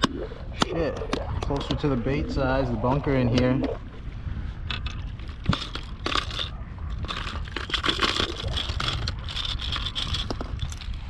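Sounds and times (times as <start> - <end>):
wind rumble on microphone: 0.0 - 11.0
plastic lures rattling in a box: 4.7 - 11.0.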